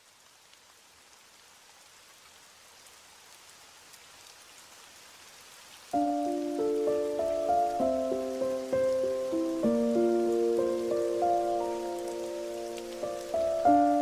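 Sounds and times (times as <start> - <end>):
faint rain: 0.0 - 14.0
music with held notes: 6.0 - 14.0.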